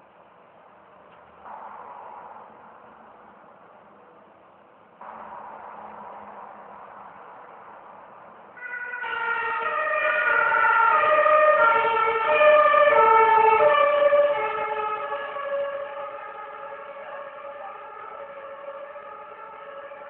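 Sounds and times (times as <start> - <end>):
two-tone siren: 5.0 - 20.0.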